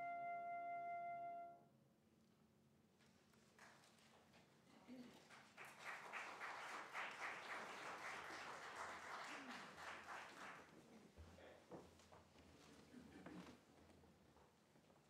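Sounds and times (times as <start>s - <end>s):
congregation applauding: 5.1s - 10.9s.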